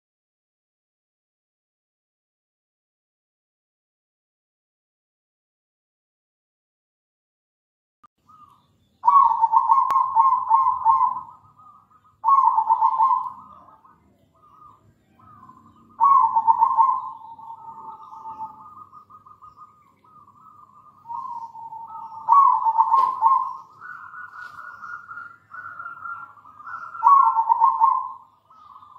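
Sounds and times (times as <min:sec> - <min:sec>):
dove cooing: 0:08.3 - 0:28.9.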